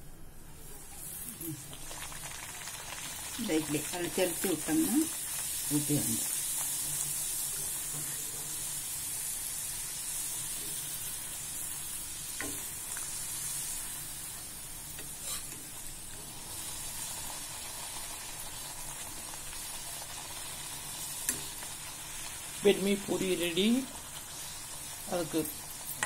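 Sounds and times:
food sizzling in hot oil: 0.6 - 26.0.

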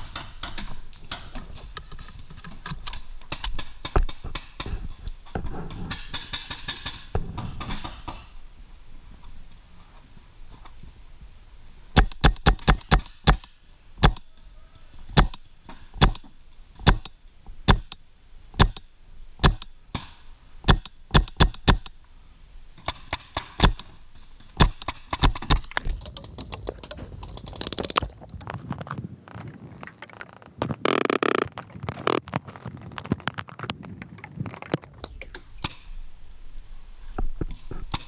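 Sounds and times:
magazine rattling and scraping: 24.8 - 35.3.

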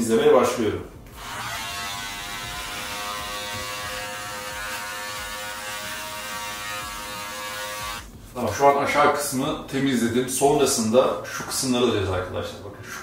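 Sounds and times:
electric beard trimmer buzzing: 1.1 - 8.1.

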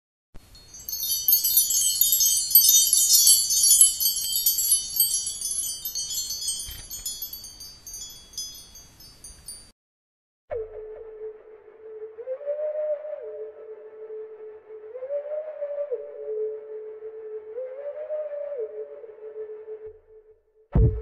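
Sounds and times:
tinkling chime tones: 0.4 - 9.7.

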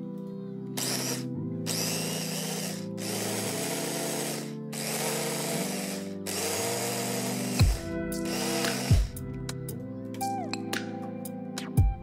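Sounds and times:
electric blender running: 0.8 - 9.1.

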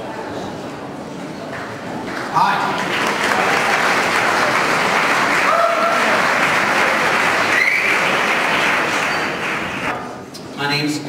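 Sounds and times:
audience applauding: 1.5 - 10.0.

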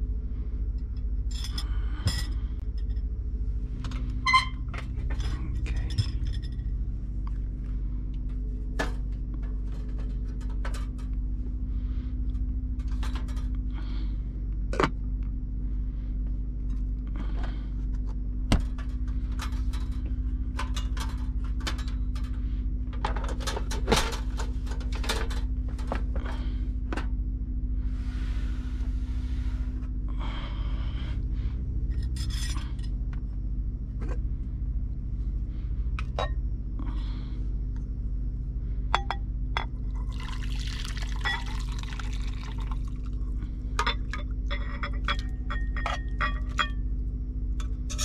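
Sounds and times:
low mechanical hum: 0.0 - 48.0
dishes and cookware clinking: 43.8 - 46.8.

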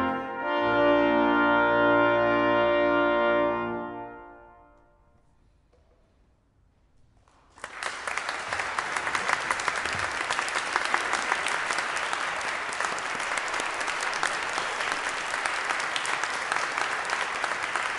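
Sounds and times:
audience applauding: 7.3 - 17.9.

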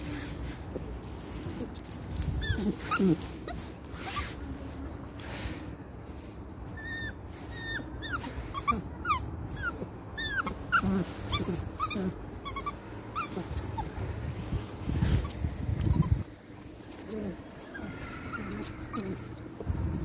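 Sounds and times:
puppy whimpering: 1.6 - 4.8, 6.6 - 14.0, 15.1 - 16.3, 16.9 - 19.7.

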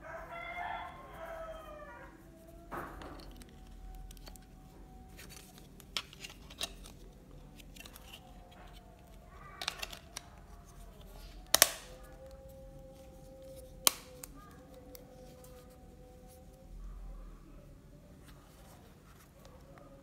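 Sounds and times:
plastic phone cover snapping: 5.2 - 8.8, 9.6 - 10.3, 11.2 - 12.2, 13.6 - 14.4.

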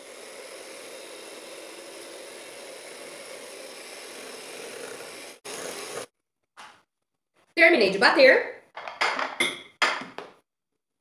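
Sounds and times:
electric hand mixer whirring: 0.0 - 6.1.

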